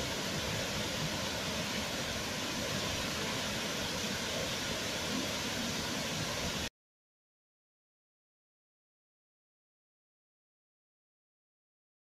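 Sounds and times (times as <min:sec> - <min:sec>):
waterfall rushing: 0:00.0 - 0:06.7.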